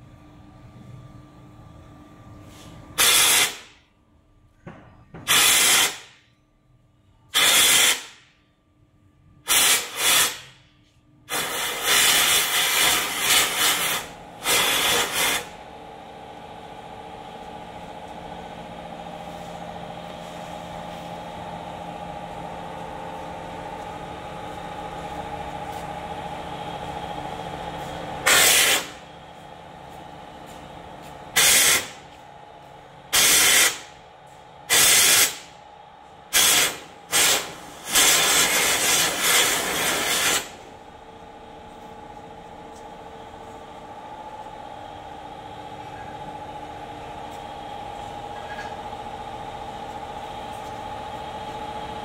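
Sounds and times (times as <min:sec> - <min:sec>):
hissing air blasts: 0:03.0 - 0:03.7, 0:09.5 - 0:10.5, 0:28.2 - 0:29.0, 0:31.4 - 0:32.0, 0:36.3 - 0:40.5.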